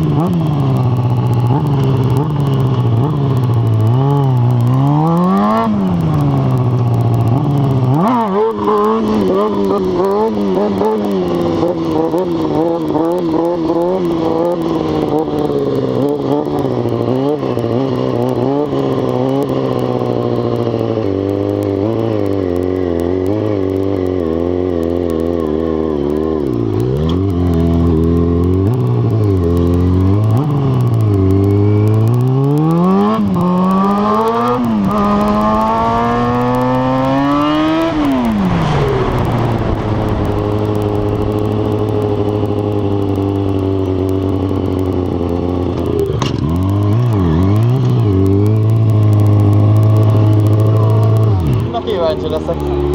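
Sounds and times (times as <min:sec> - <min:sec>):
motorcycle engine revving: 0:00.0 - 0:52.9.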